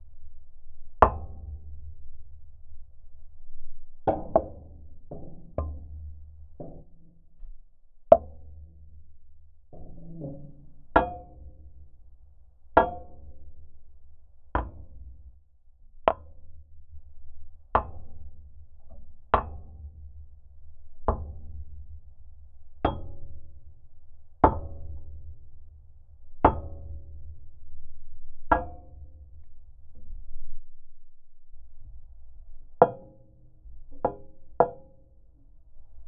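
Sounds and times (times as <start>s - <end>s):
steady low rumble: 0.0s - 4.2s.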